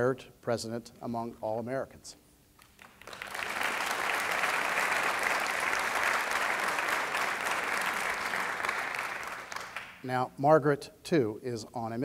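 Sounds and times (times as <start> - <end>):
audience applauding: 2.6 - 10.0.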